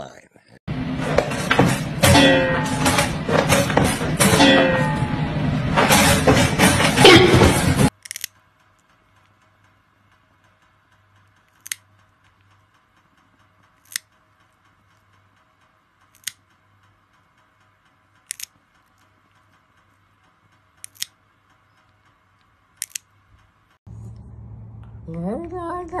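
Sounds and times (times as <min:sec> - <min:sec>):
nail clipper clicking: 0:13.8 - 0:14.1, 0:16.1 - 0:16.4, 0:18.3 - 0:18.5, 0:20.8 - 0:21.1, 0:22.8 - 0:23.0.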